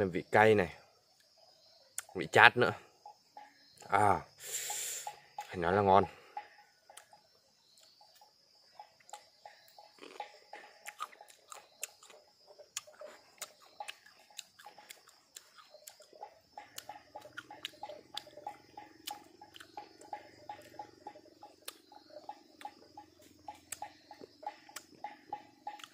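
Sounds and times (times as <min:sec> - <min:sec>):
person chewing crunchy fruit: 0:09.0 - 0:25.9.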